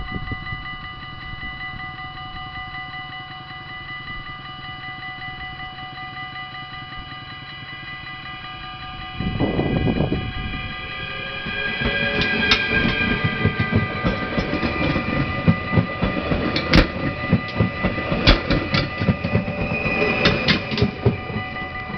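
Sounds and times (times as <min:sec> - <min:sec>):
level crossing warning bell: 0:00.0 - 0:21.9
train motor whine: 0:00.1 - 0:21.9
loud rush of noise: 0:09.0 - 0:21.9
train wheels clacking over rail joints: 0:11.0 - 0:21.9.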